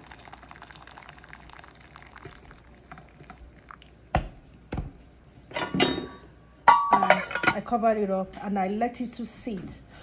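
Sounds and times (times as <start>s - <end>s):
water pouring into metal pot: 0.0s - 4.6s.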